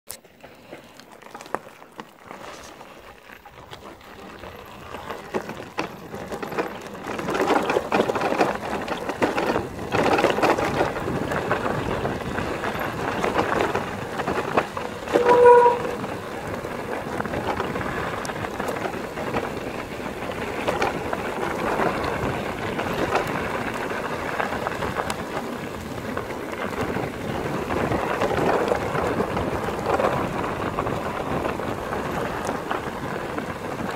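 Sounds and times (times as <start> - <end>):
bike tyres crunching on gravel: 0.2 - 33.9
bike knocks and rattles: 5.0 - 33.9
brief pitched tone: 15.1 - 16.0.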